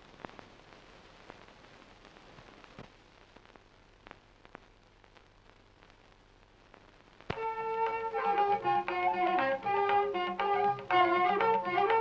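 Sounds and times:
crackles: 0.0 - 12.0
old film soundtrack hiss: 0.0 - 12.0.

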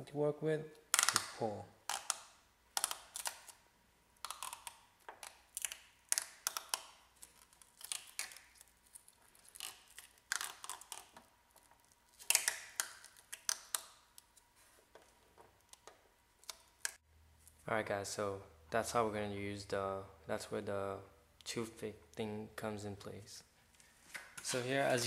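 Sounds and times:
rubber coating peeling crackles: 4.2 - 14.0.

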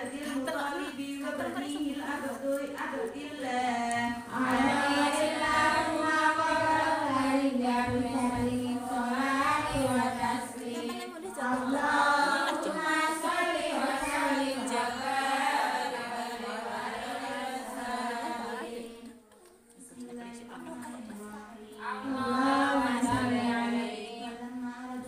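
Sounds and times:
women chanting in unison: 0.0 - 19.2, 21.0 - 25.0.

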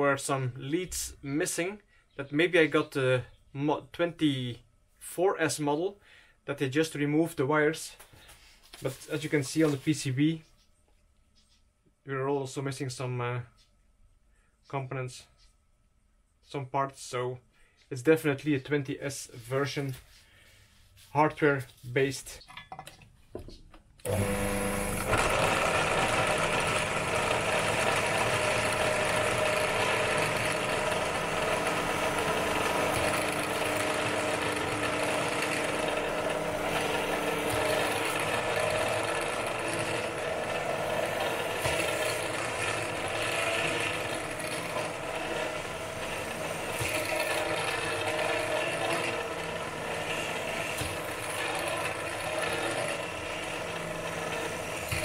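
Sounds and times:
drill press drilling metal: 24.0 - 55.0.

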